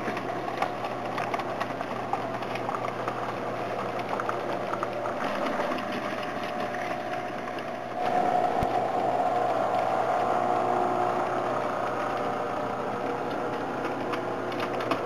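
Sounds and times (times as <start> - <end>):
model locomotive whine: 7.9 - 15.0.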